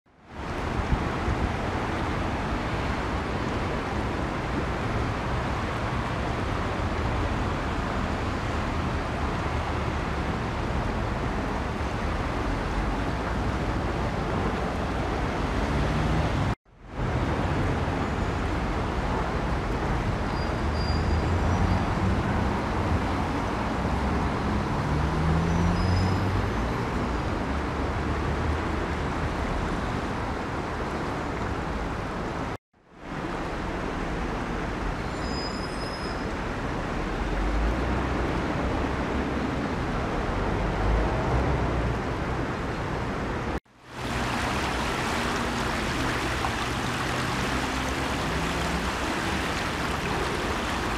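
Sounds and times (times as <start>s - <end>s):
low rumble of road traffic: 0.1s - 50.9s
shallow river flowing: 36.3s - 50.9s.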